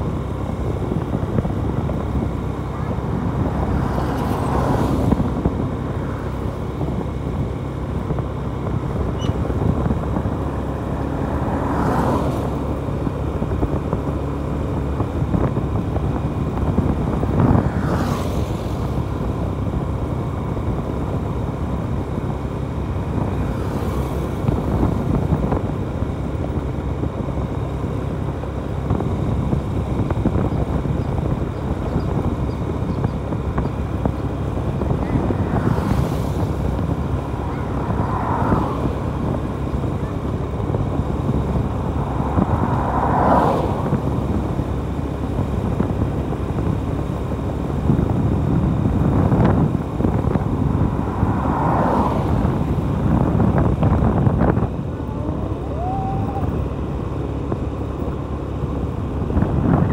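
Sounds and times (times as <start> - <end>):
motorcycle engine: 0.0 - 59.9
wind and road noise: 0.0 - 59.9.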